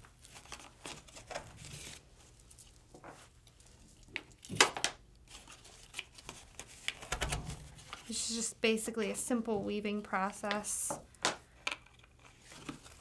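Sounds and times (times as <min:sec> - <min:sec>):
cardboard rustling: 0:12.2 - 0:13.0.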